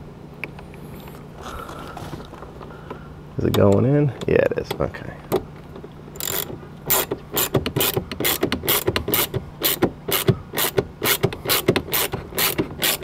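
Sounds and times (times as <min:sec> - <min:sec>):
hand ratchet clicking: 0:06.2 - 0:13.0.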